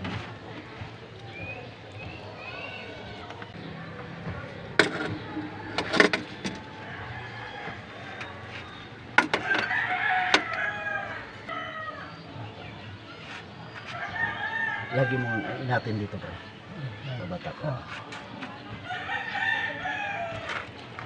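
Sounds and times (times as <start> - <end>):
rooster crowing: 5.4 - 8.6, 9.4 - 12.1, 14.0 - 15.6.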